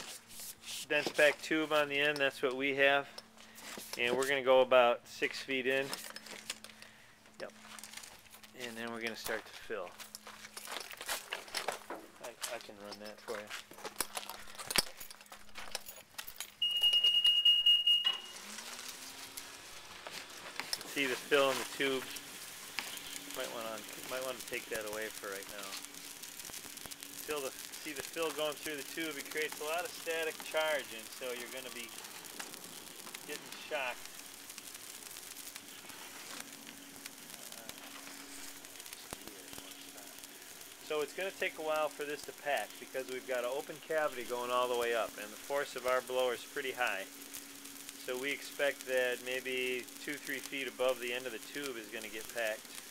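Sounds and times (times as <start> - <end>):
blower motor hum: 5.3 - 52.9
high-pitched beep: 16.6 - 18.4.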